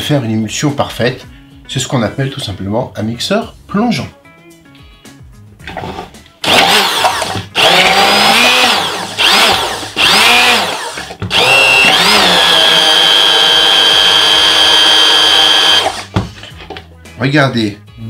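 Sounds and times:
immersion blender running: 6.4s - 16.2s.

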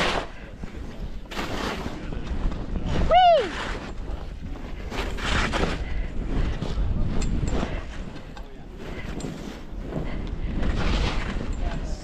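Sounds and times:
skis scraping through snow: 0.0s - 12.0s
wind rumbling on microphone: 0.0s - 12.0s
person whooping: 3.0s - 3.7s.

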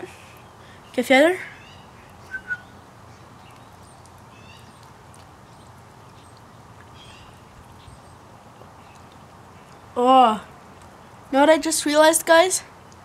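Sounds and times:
low outdoor background: 0.0s - 13.0s
faint bird chirps: 1.5s - 4.9s.

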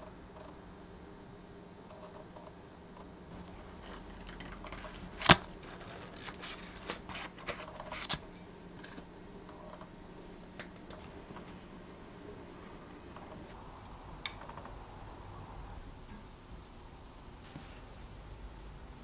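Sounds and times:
knife cutting butter in foil: 3.4s - 8.2s.

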